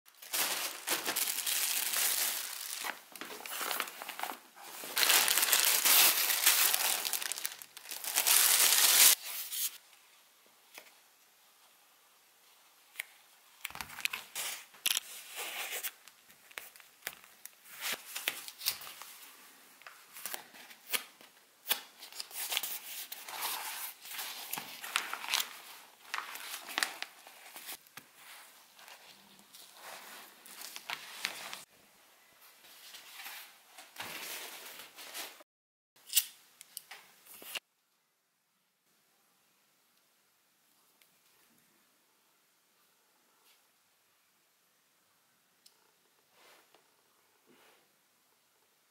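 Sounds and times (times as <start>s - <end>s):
plastic packaging crinkling and tearing: 0.1s - 9.2s, 13.7s - 15.1s, 21.8s - 27.8s.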